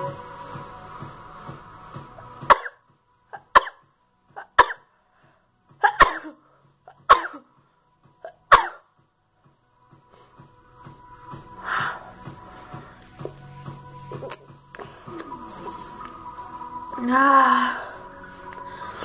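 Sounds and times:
background music: 0.0 - 19.0
boy coughing: 5.8 - 7.5.

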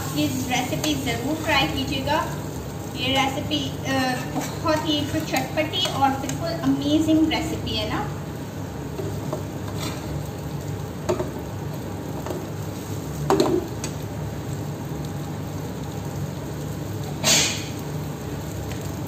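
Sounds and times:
slices sizzling in oil: 0.0 - 19.0
metal spatula scraping pan: 4.2 - 4.7.

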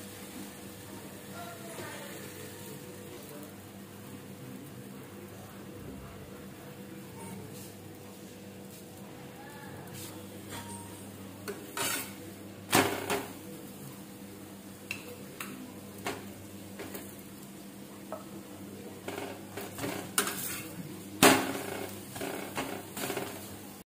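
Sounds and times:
metal utensils scraping griddle: 11.5 - 12.2, 19.1 - 23.5.

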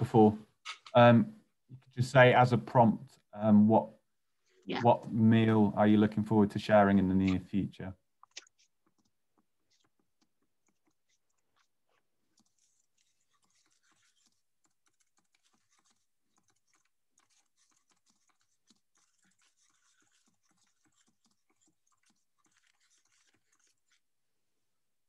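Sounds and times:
faint keyboard typing: 8.2 - 24.0.

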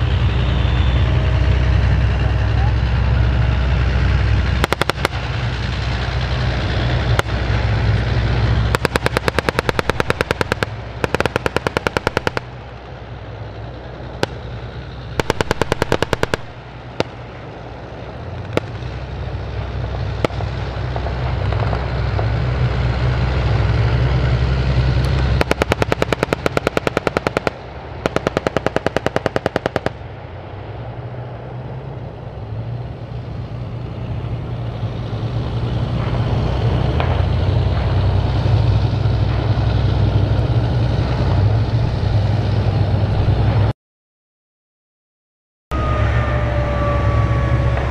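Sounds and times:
boat engine droning: 0.0 - 43.6, 45.7 - 47.9
automatic gunfire: 4.6 - 5.2, 8.7 - 12.6, 15.2 - 17.1, 25.4 - 30.0
single gunshots: 4.6 - 5.2, 8.7 - 12.5, 15.2 - 17.1, 25.4 - 30.0.

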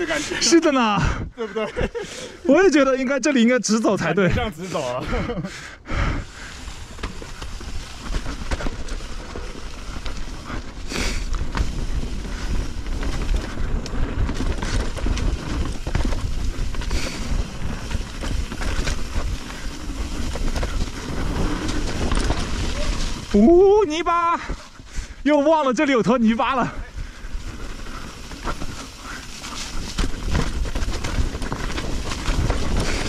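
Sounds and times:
bike rattling over rough ground: 0.0 - 33.0.

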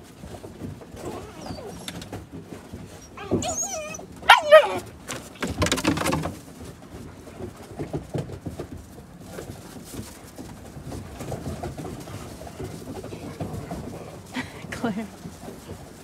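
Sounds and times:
puppies scuffling: 0.0 - 16.0
puppy yelping: 1.0 - 2.0, 3.0 - 4.9
puppy barking: 3.2 - 4.8.

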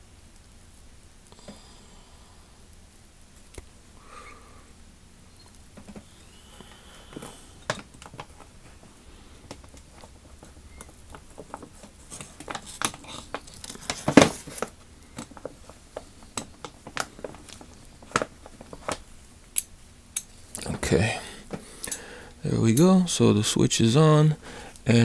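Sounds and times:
gloves crinkling: 5.4 - 23.0.

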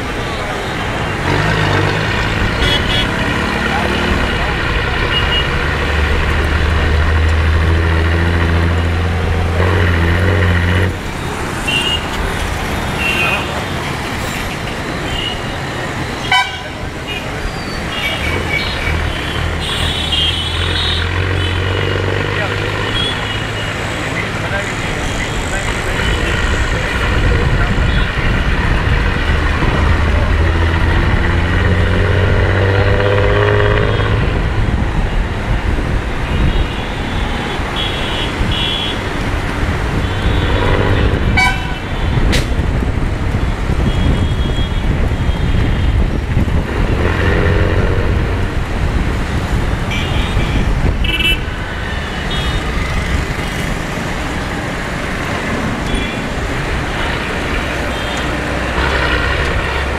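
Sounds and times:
engine and road rumble: 0.0 - 59.9
vehicle horns tooting: 2.5 - 3.3, 5.0 - 5.6, 11.6 - 12.2, 15.0 - 21.8, 36.2 - 39.1, 39.9 - 42.3, 43.8 - 46.1, 49.9 - 53.7.

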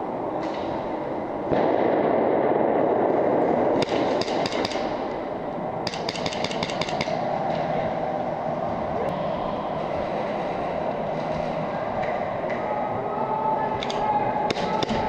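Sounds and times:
steady rushing noise: 0.0 - 14.9
airsoft guns firing sharp cracks: 3.8 - 5.1, 5.8 - 7.2.

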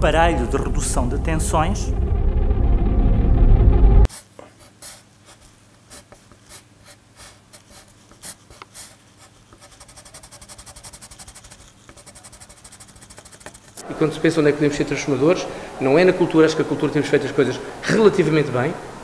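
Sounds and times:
loud low rumble: 0.0 - 4.1
pencil scratching on paper: 4.1 - 13.8.

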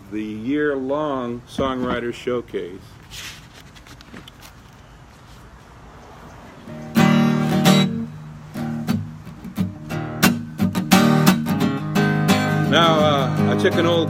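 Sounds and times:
acoustic guitar strumming chords: 6.6 - 14.0.

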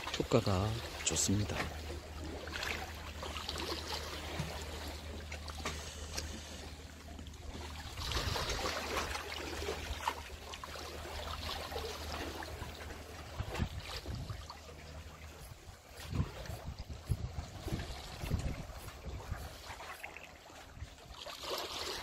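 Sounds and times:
waves splashing on concrete: 7.4 - 22.0.

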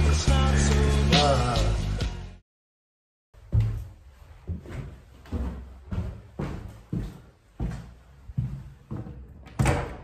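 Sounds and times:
background music: 0.0 - 2.4.

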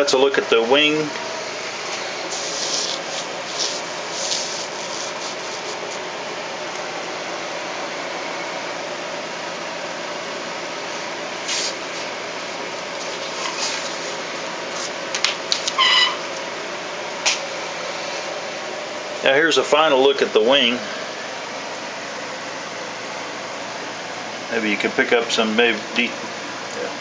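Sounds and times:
ventilation hiss: 0.0 - 27.0
brief high squeak: 15.8 - 16.3.

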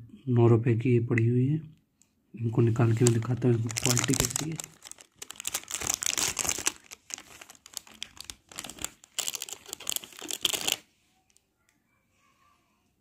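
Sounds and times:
plastic wrapping crinkling: 2.8 - 11.4.

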